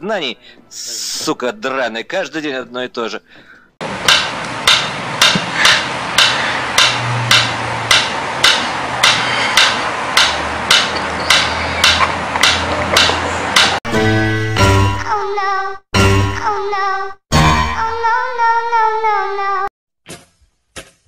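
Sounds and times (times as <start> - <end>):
metronome ticking: 4.1 - 13.8.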